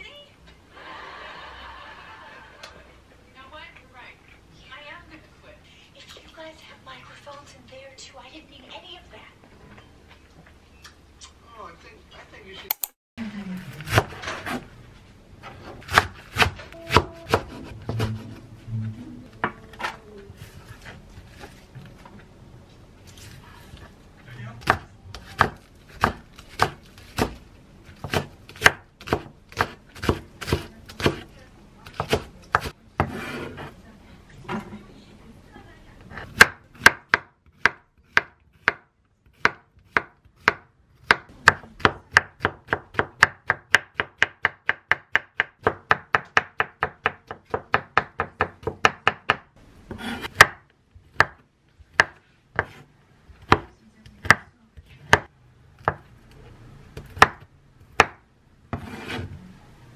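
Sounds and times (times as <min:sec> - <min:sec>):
knife chopping on wooden board: 0:15.6 - 0:18.3, 0:24.6 - 0:31.3, 0:31.9 - 0:33.7, 0:36.2 - 0:54.4, 0:55.1 - 0:56.0, 0:57.0 - 0:59.3.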